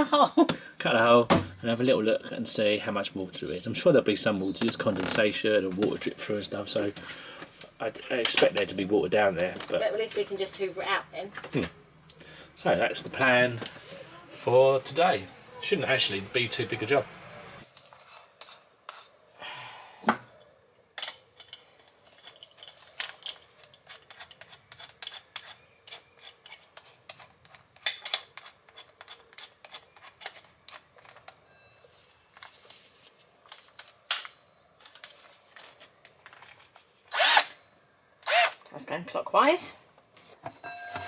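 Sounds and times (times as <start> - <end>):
tools and objects handled: 6.8 - 11.8, 17.6 - 19.2, 20.0 - 38.8, 39.9 - 41.0.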